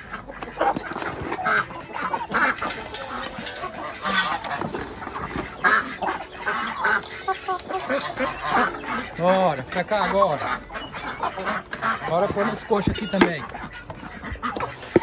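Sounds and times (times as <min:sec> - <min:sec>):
chickens clucking and squawking: 0:00.0 - 0:15.0
duck and goose calls: 0:00.0 - 0:15.0
dry feed poured from bucket: 0:02.3 - 0:10.5.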